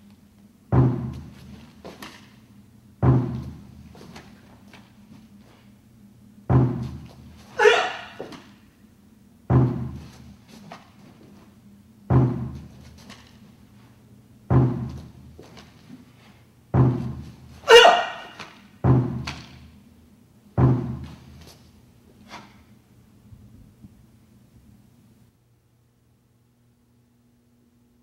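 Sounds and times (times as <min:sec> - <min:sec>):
deep drum strikes: 0:00.7 - 0:01.4, 0:03.0 - 0:03.8, 0:09.5 - 0:10.1, 0:12.1 - 0:12.7
loud short shout: 0:07.6 - 0:08.3, 0:17.7 - 0:18.4.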